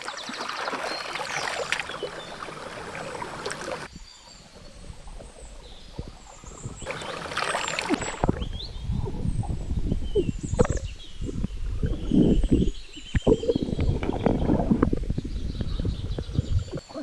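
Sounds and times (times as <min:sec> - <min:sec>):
river water splashing and churning: 0:00.0 - 0:09.1.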